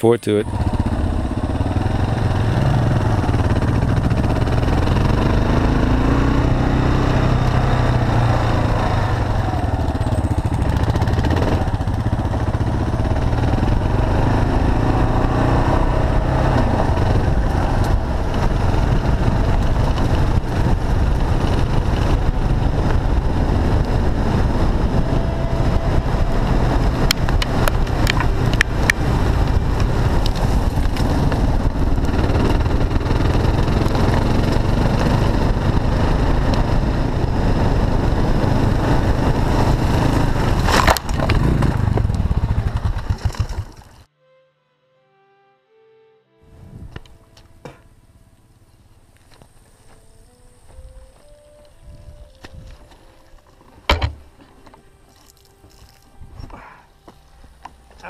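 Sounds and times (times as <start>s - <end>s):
motorcycle engine running: 0.0s - 44.1s.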